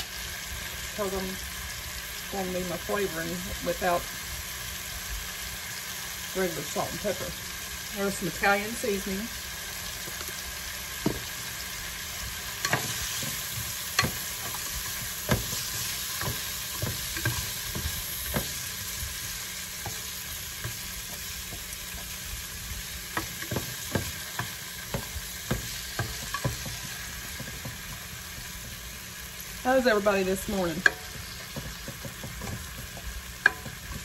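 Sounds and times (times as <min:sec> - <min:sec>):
vegetables sizzling in a pan: 0:00.0 - 0:34.0
spatula scraping pan: 0:12.3 - 0:34.0.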